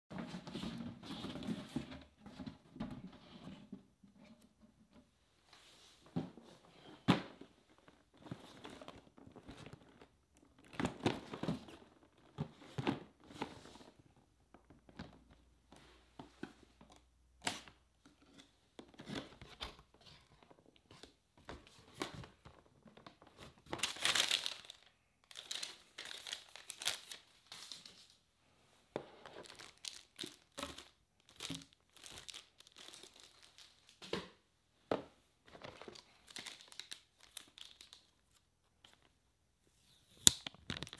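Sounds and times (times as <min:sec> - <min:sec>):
cardboard box rustling and crinkling: 0:21.6 - 0:27.2, 0:29.2 - 0:34.0.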